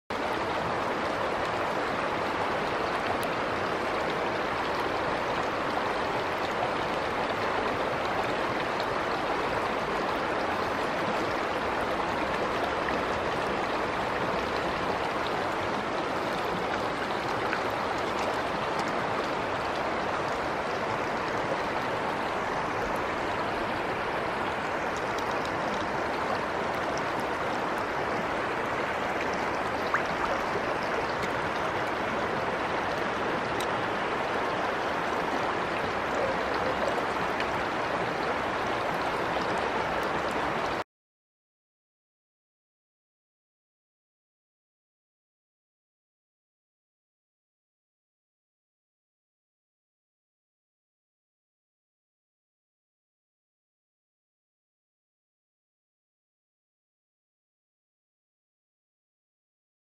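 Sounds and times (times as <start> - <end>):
river water flowing: 0.1 - 40.8.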